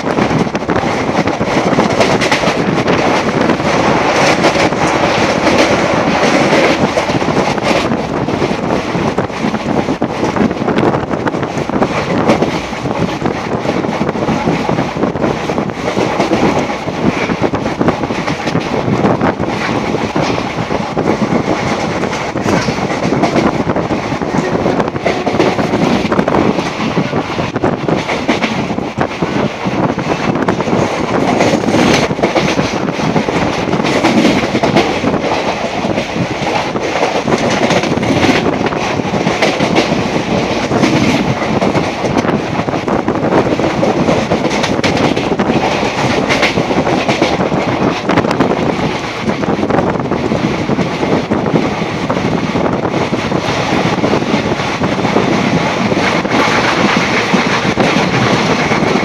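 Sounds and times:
wheels clacking over rail joints: 0.0s - 50.9s
train rumbling: 0.0s - 59.0s.

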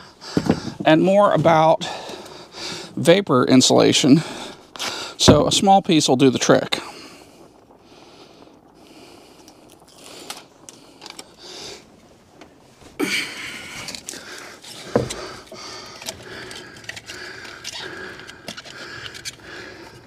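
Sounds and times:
heavy thump: 5.2s - 5.7s.

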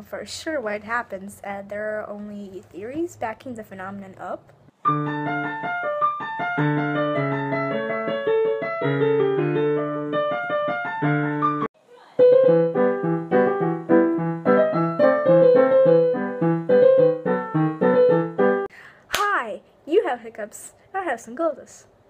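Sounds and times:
piano music: 4.7s - 18.7s.

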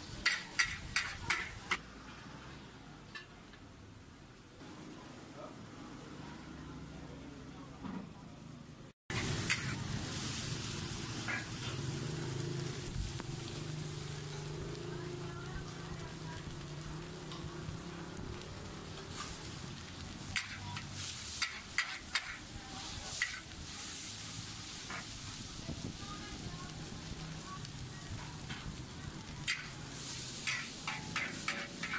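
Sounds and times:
metal spatula scraping a wok: 0.0s - 1.8s, 9.1s - 12.0s, 18.9s - 19.6s, 20.2s - 25.4s, 28.5s - 31.9s
noodles sizzling in a wok: 0.0s - 2.6s, 9.1s - 31.9s.

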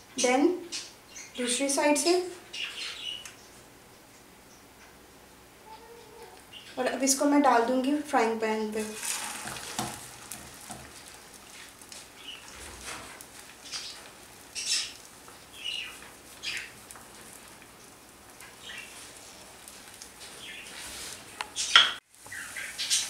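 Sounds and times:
bread sizzling in oil: 8.6s - 23.0s
oil popping and spattering: 8.8s - 21.7s.

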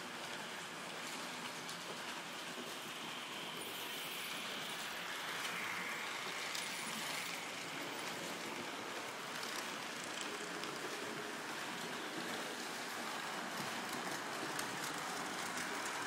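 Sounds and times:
model train wheels rushing on track: 0.0s - 16.0s.

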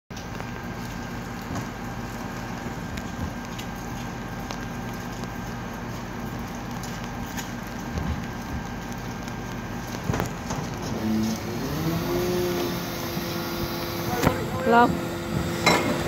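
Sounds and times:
rain pattering: 0.1s - 16.0s
truck engine idling: 8.7s - 16.0s.

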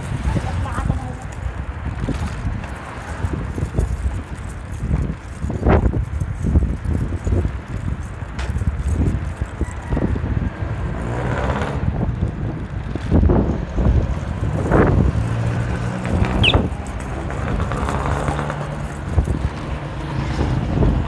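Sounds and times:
wind buffeting microphone: 0.0s - 21.0s
brief high chirp: 16.4s - 16.7s.

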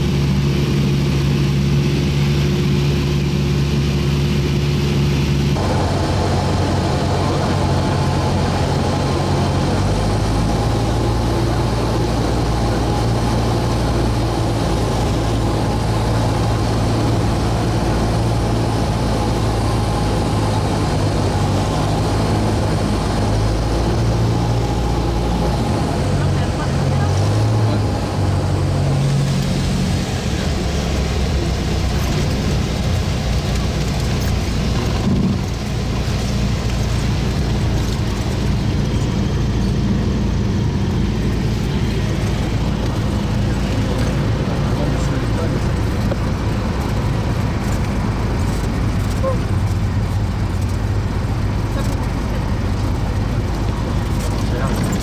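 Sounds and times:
piston engine droning: 0.0s - 55.0s
wind rush: 0.0s - 55.0s.

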